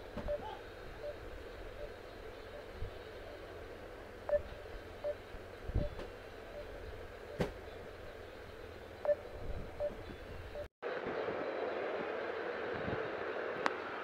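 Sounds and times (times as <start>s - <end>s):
low background hum: 0.0s - 14.0s
phone call connecting beeps: 4.3s - 5.2s.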